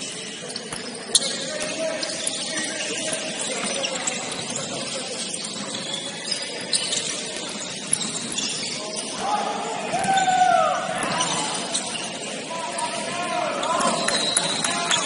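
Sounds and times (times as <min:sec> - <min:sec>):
sneaker squeaks on court: 0:00.0 - 0:09.2, 0:10.0 - 0:13.0.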